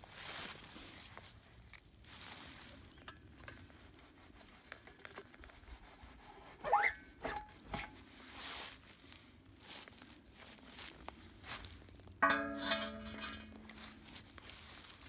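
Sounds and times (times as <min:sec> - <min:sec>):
handling rustling: 0:07.3 - 0:15.0.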